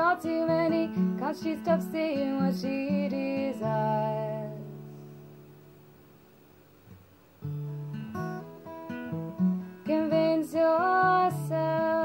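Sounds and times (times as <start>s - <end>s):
woman singing: 0.0s - 4.8s, 9.8s - 12.0s
acoustic guitar picking: 0.0s - 5.8s, 6.9s - 12.0s.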